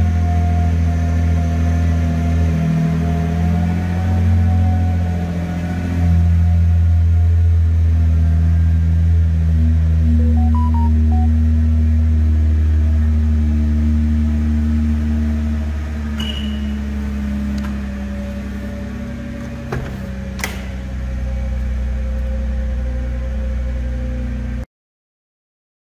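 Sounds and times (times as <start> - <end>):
car engine idling: 13.9 - 22.8.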